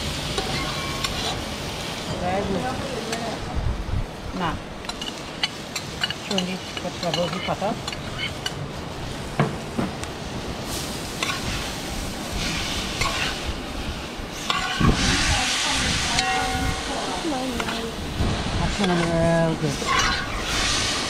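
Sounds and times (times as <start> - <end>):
food sizzling in a metal pot: 0.0 - 21.0
spoon stirring and scraping pot: 4.9 - 8.6, 13.0 - 13.4, 14.4 - 15.0, 18.8 - 20.6.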